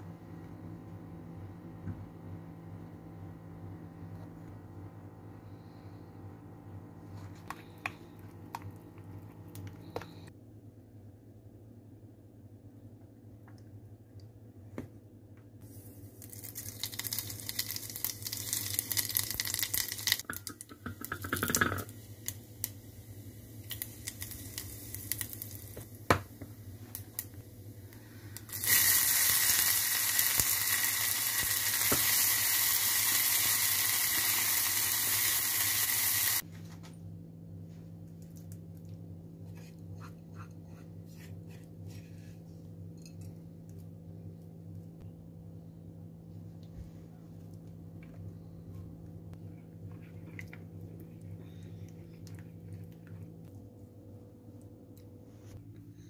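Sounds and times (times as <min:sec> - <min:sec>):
low steady hum: 0:00.0 - 0:56.0
seeds sizzling in hot oil: 0:15.7 - 0:26.0, 0:26.6 - 0:36.4
onion frying with loud sizzle: 0:15.8 - 0:27.7, 0:28.4 - 0:36.4.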